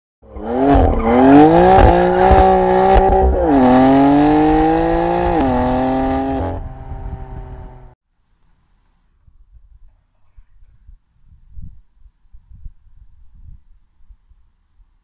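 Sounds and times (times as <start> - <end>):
car engine revving and accelerating: 0.2 - 8.0.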